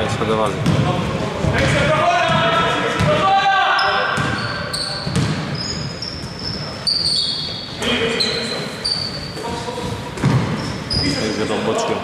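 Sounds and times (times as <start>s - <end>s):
sneakers squeaking on floor: 0.6s - 11.6s
basketball dribbling: 5.0s - 5.6s, 9.5s - 10.6s.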